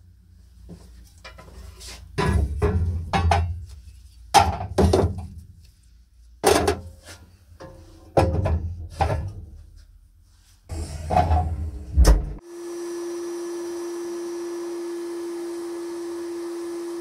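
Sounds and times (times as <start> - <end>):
objects knocking on steel grate: 2.2 - 3.6, 4.4 - 5.3, 7.6 - 9.5.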